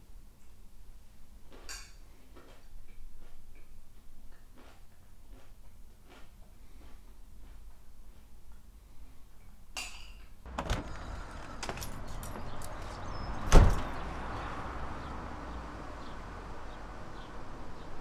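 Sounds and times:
outdoor background hiss: 9.0 - 18.0
front door banging shut: 10.5 - 18.0.

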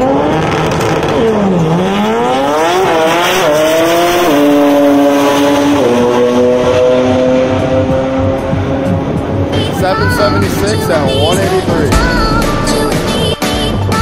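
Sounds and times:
drag car engine at full throttle: 0.0 - 13.0.

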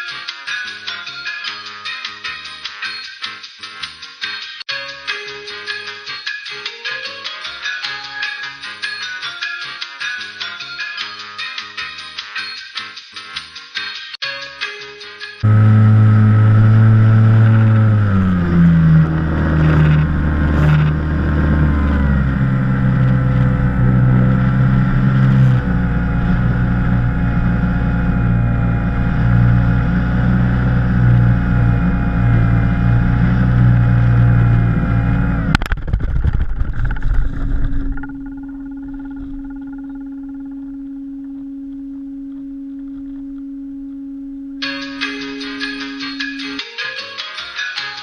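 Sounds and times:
rough scraping: 15.4 - 40.3
model plane motor and propeller: 15.4 - 41.0
quiet steady tone: 37.3 - 44.7.

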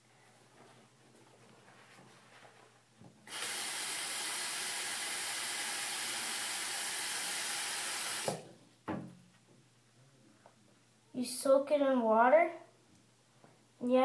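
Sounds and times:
tap water running: 3.3 - 8.5.

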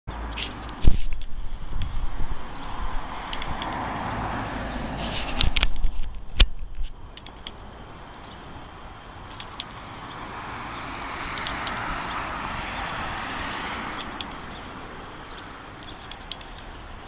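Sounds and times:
vehicle passing: 0.1 - 5.7, 7.8 - 17.0
small sharp clicks: 3.3 - 3.9, 5.0 - 8.1, 9.3 - 9.8, 11.3 - 11.9, 14.0 - 14.5, 15.8 - 16.9.

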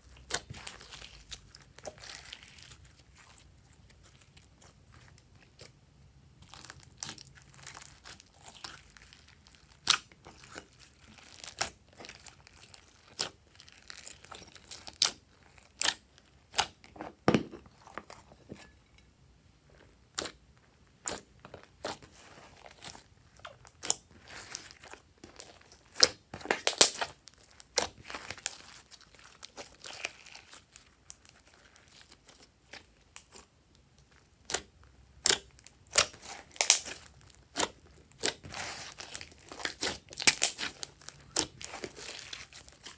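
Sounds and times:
slime squelching with sticky pops: 34.3 - 42.9.

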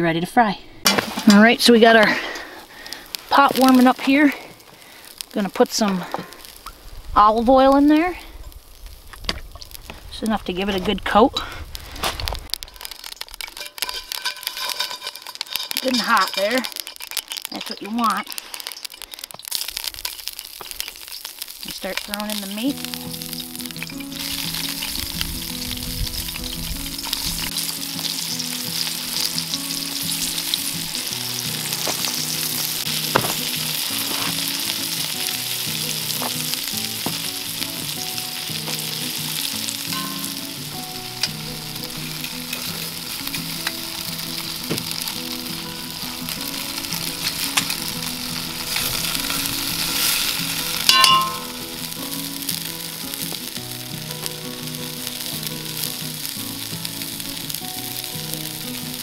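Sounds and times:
meat sizzling in oil: 0.9 - 59.0
metal utensil clinking on pot: 12.6 - 18.0, 39.9 - 40.4, 50.8 - 51.6.

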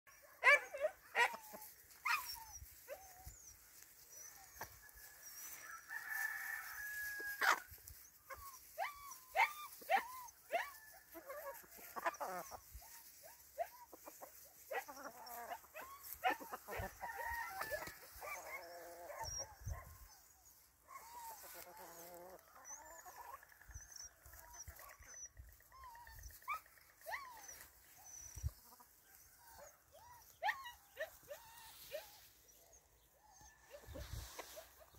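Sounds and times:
chickens clucking: 11.1 - 13.2, 13.8 - 18.2, 21.3 - 29.1.

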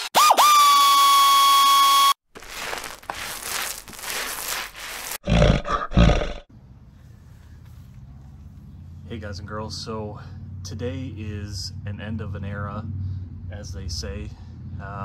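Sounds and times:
crackling rustle: 2.3 - 5.2.

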